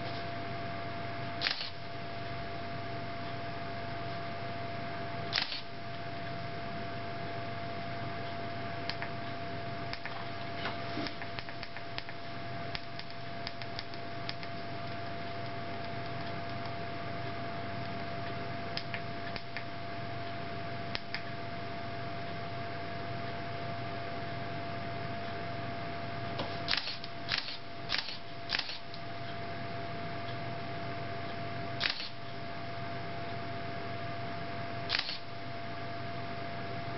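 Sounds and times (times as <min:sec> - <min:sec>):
faint steady high hum: 0:00.0 - 0:36.9
thin whine and hiss: 0:00.0 - 0:36.9
camera shutter firing: 0:01.4 - 0:01.8, 0:05.3 - 0:05.7, 0:26.7 - 0:28.8, 0:31.8 - 0:32.2, 0:34.9 - 0:35.3.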